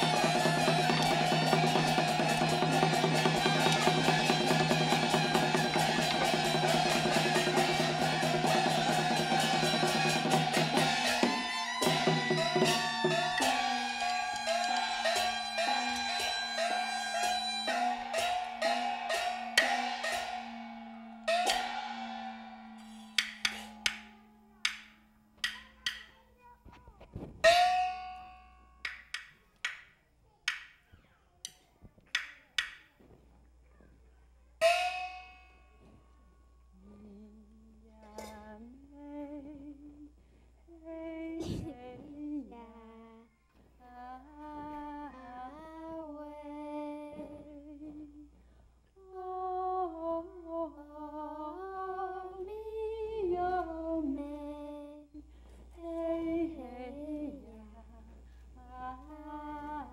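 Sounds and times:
ringing percussion stroke: 0:00.0 - 0:26.1, 0:27.4 - 0:29.2, 0:34.6 - 0:35.9
sharp percussion strikes: 0:00.0 - 0:26.2, 0:27.4 - 0:29.8, 0:34.6 - 0:35.8
person humming a melody: 0:40.7 - 0:43.0.

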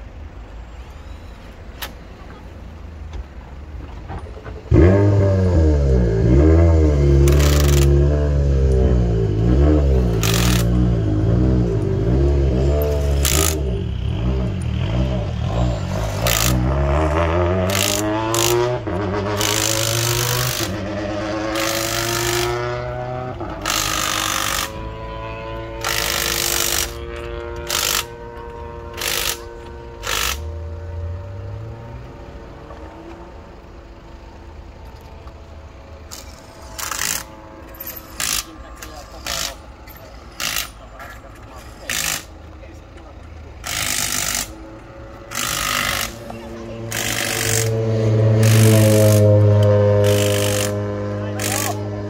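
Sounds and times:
cars passing: 0:00.0 - 0:52.0
impact wrench buzzing: 0:06.2 - 0:25.0, 0:25.6 - 0:30.6, 0:36.0 - 0:40.8, 0:41.7 - 0:42.5, 0:43.6 - 0:52.0.

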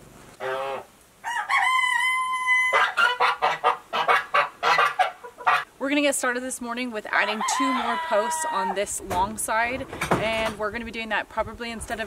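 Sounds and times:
hen cackling and clucking: 0:00.4 - 0:05.7, 0:07.1 - 0:09.0.

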